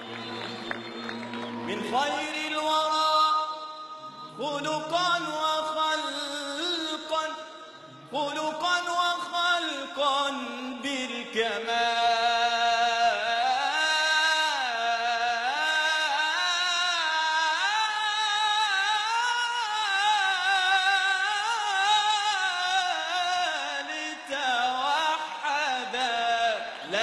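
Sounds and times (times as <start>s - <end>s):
man singing religious chant: 1.7s - 27.0s.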